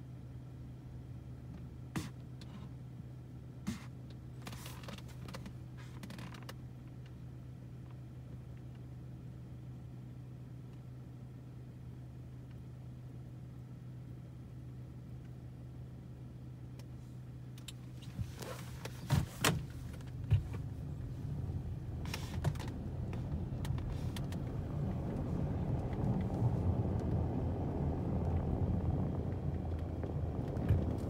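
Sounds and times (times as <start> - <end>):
car engine idling: 6.6 - 31.0.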